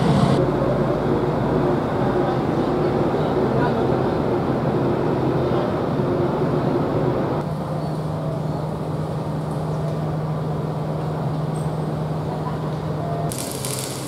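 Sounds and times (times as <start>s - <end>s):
diesel engine idling: 0.0s - 4.1s.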